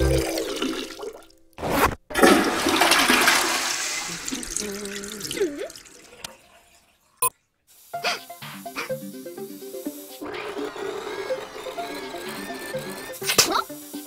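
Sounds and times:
toilet flushing: 0.0s - 1.3s, 2.1s - 7.2s.

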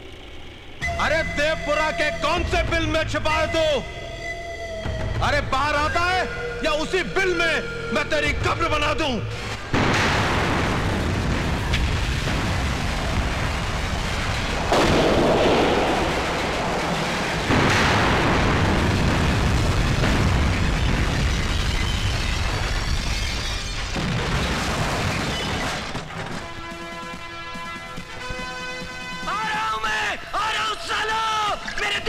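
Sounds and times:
film score with held notes: 0.0s - 10.8s
heavy rumbling explosions: 8.3s - 26.6s.

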